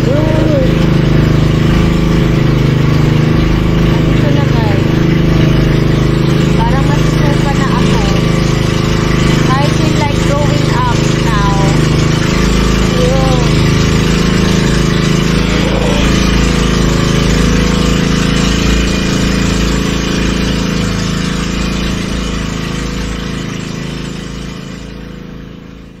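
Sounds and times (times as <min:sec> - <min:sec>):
boat engine running: 0:00.0 - 0:26.0.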